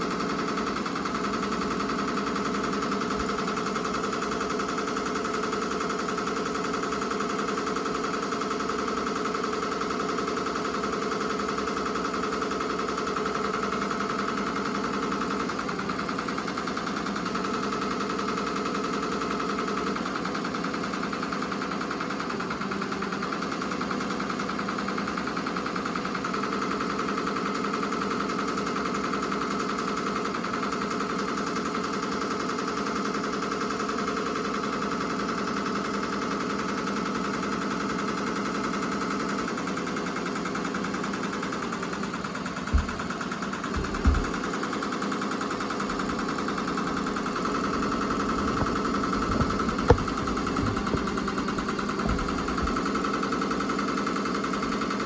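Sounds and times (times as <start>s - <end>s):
embroidery machine stitching: 34.6s - 55.0s
short thumps: 42.7s - 44.4s, 48.0s - 52.9s.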